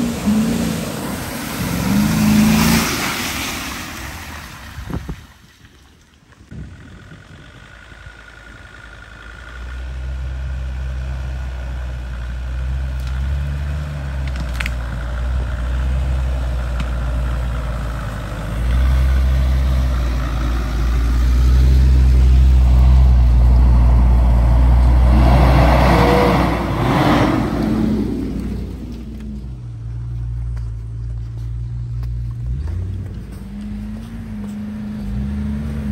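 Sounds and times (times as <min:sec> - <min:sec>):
broad rushing noise: 0:00.0 - 0:05.2
suv engine running at low revs: 0:00.0 - 0:05.3, 0:06.5 - 0:35.9.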